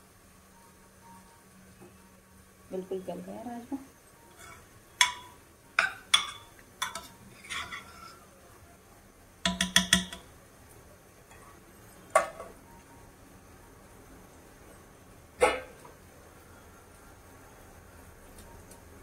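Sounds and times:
metal spoon clinking on pot: 0:04.4 - 0:07.9, 0:09.5 - 0:10.3.

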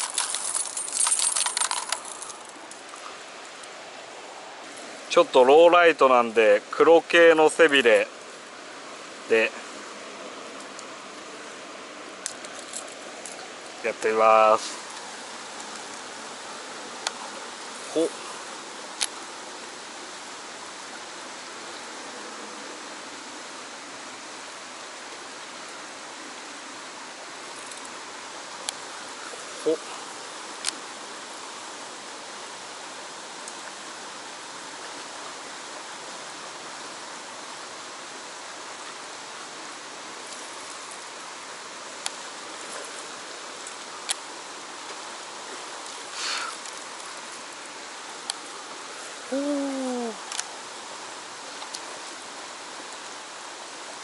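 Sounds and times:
stream rushing over rocks: 0:00.0 - 0:54.0
short falling call: 0:49.3 - 0:50.2.

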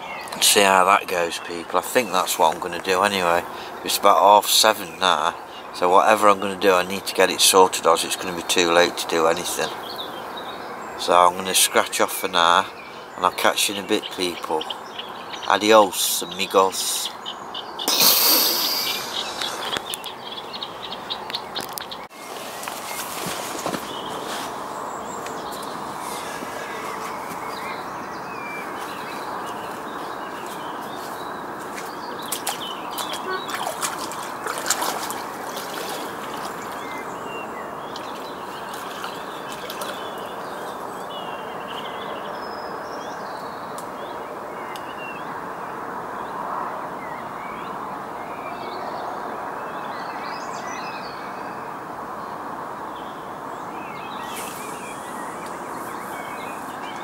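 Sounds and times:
small birds chirping: 0:00.0 - 0:57.0
steady background hiss: 0:52.7 - 0:57.0.

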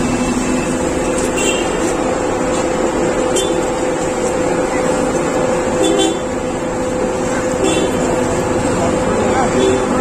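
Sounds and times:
constant hum: 0:00.0 - 0:10.0
traffic noise: 0:00.0 - 0:10.0
faint voices: 0:04.1 - 0:05.8.

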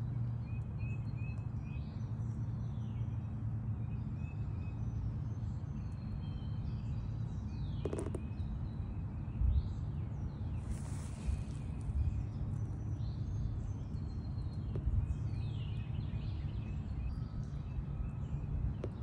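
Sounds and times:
steady low rumble: 0:04.9 - 0:19.0.

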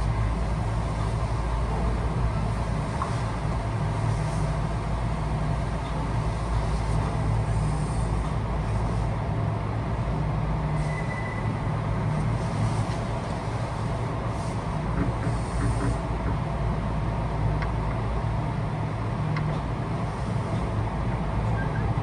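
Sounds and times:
low motor hum: 0:00.0 - 0:22.0
train wheels rumbling on rail: 0:00.0 - 0:22.0
faint high squeal: 0:10.8 - 0:11.6, 0:21.5 - 0:21.9.

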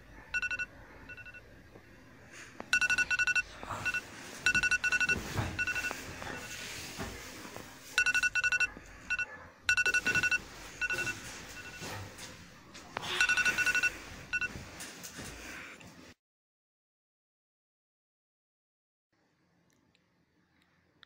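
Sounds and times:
short high electronic beeps: 0:02.7 - 0:05.9, 0:08.0 - 0:11.8.

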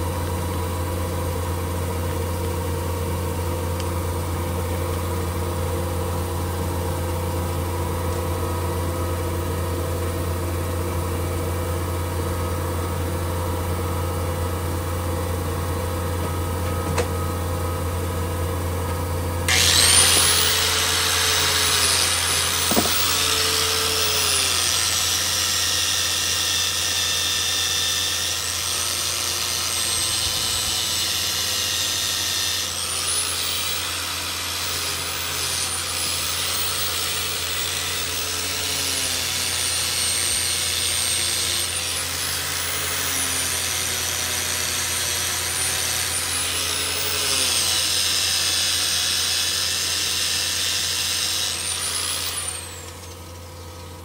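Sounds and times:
handheld grinder whining: 0:19.5 - 0:54.0.

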